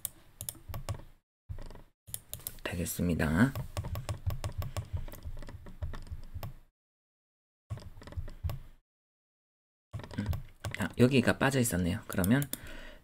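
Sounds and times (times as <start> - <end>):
mouse and keyboard clicks: 3.5 - 6.6.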